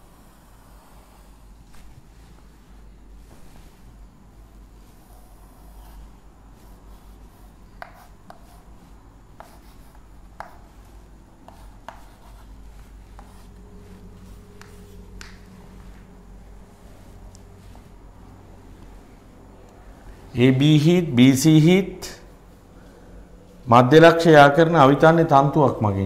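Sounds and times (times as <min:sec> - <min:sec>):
low steady hum: 0:00.0 - 0:26.0
chalk tapping and scratching: 0:04.8 - 0:16.1.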